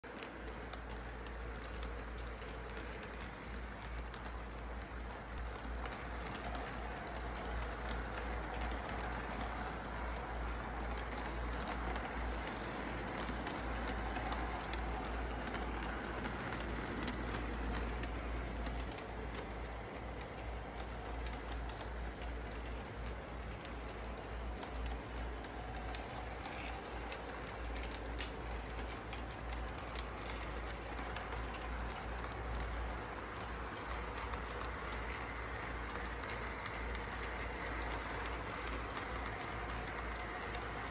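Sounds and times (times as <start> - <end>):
background noise: 0.0 - 40.9
toy train humming: 0.0 - 40.9
train wheels clicking: 0.0 - 40.9.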